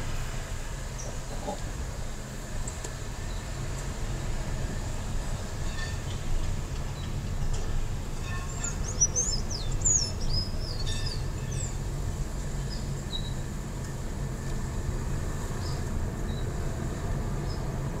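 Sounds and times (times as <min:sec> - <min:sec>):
car driving slowly: 0:00.0 - 0:18.0
songbird singing: 0:08.5 - 0:11.8.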